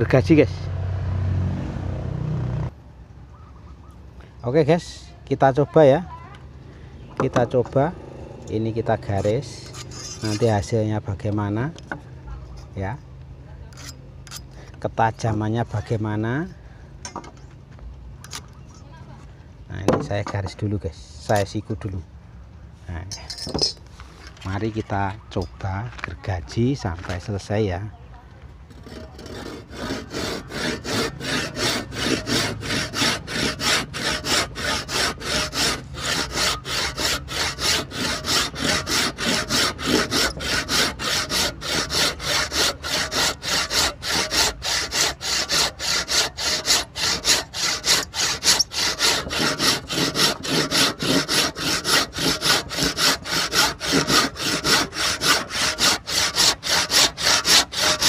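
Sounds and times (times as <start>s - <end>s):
hand saw cutting wood: 8.5s - 10.8s, 28.7s - 58.0s.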